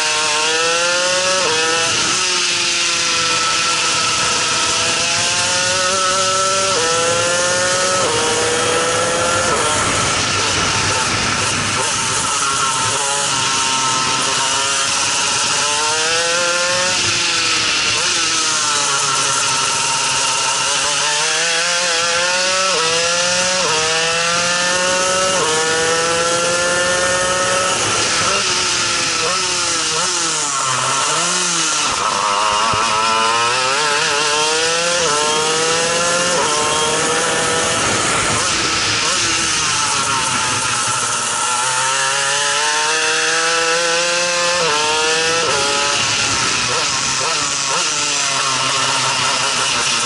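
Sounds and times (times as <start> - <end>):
high-pitched kart engine revving: 0.0 - 50.0.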